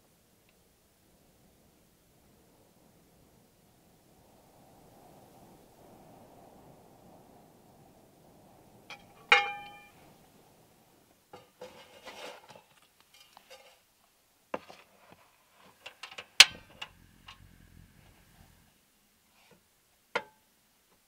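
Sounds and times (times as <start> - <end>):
metallic clank of pan: 8.9 - 9.9
wooden spoon scraping in pan: 11.4 - 13.9.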